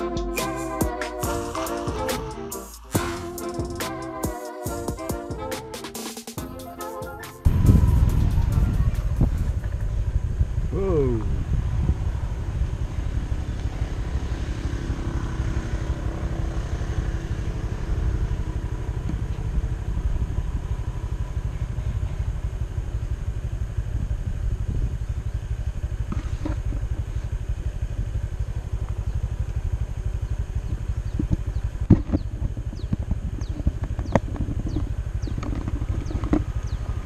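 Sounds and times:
faint vehicle engine: 0:06.4 - 0:37.0
wind buffeting microphone: 0:07.4 - 0:16.1, 0:23.3 - 0:25.3, 0:30.6 - 0:37.0.

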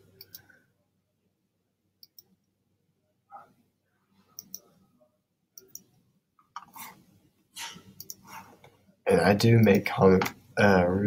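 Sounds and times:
computer mouse clicking: 0:00.2 - 0:00.5, 0:02.0 - 0:02.4, 0:04.4 - 0:04.8, 0:05.6 - 0:06.9, 0:08.0 - 0:08.3, 0:09.6 - 0:10.4.

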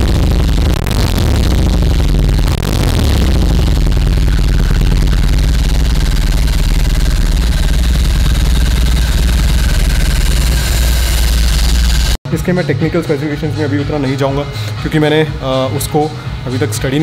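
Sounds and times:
motorcycle engine revving and idling: 0:00.0 - 0:12.2.

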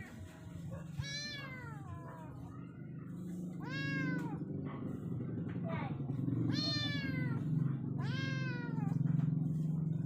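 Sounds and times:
kitten meowing: 0:00.9 - 0:02.3, 0:03.6 - 0:04.4, 0:06.5 - 0:09.0.

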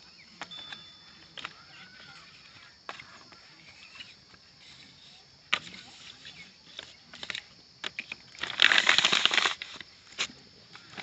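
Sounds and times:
plastic bag crinkling: 0:06.7 - 0:11.0.

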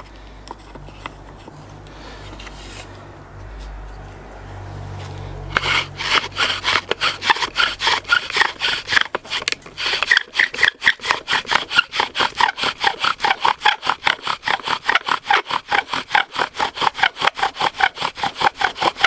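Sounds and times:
bow drill spindle rubbing wood: 0:05.5 - 0:19.0.

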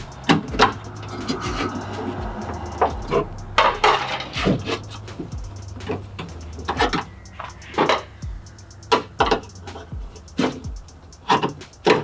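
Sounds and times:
sharp metal clicks and knocks: 0:03.6 - 0:12.0.

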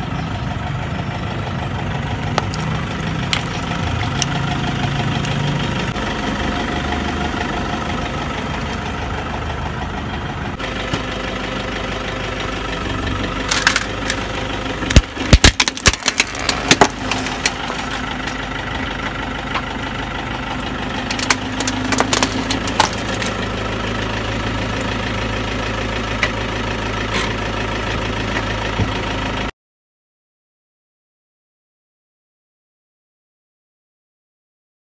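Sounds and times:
car engine idling: 0:00.0 - 0:29.5
tyre crushing plastic and metal: 0:13.4 - 0:18.6, 0:21.0 - 0:23.5.

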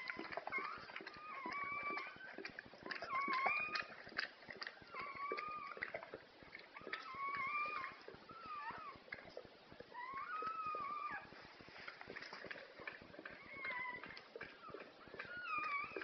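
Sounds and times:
puppies crying: 0:00.0 - 0:04.0, 0:04.8 - 0:06.1, 0:06.8 - 0:09.0, 0:09.9 - 0:11.3, 0:12.8 - 0:16.0.

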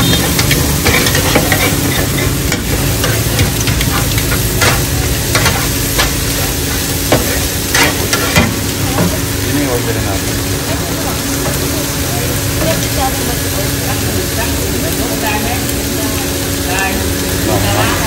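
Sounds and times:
metal spatula tapping pan: 0:00.0 - 0:06.5
food sizzling in a pan: 0:00.0 - 0:18.0.

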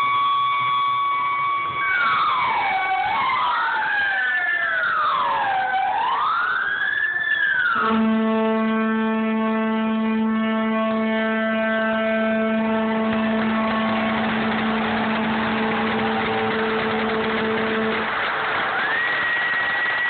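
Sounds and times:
ship's horn blast: 0:07.8 - 0:18.3
crowd applause and cheering: 0:12.6 - 0:20.0.

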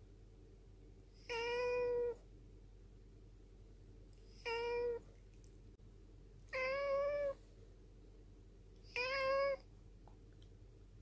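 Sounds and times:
cat meowing: 0:01.2 - 0:02.2, 0:04.3 - 0:05.1, 0:06.5 - 0:07.4, 0:08.8 - 0:09.7.

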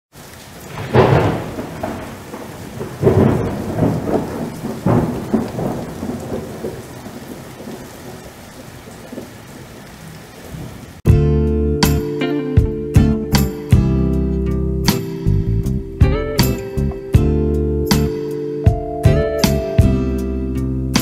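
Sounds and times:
steady rain: 0:00.1 - 0:11.1
thunder rolling: 0:00.7 - 0:09.5.

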